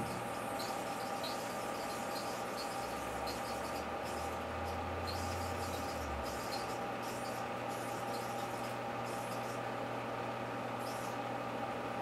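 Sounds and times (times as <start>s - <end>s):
high squeaky chirps: 0.0s - 4.4s
microwave oven humming: 0.0s - 12.0s.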